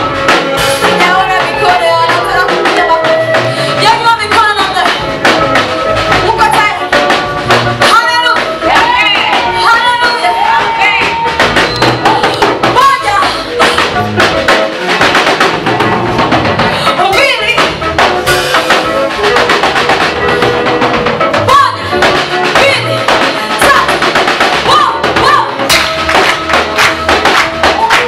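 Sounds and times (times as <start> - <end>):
drum kit beat: 0.0 - 28.0
gospel band playing: 0.0 - 28.0
woman singing into microphone: 0.9 - 5.0.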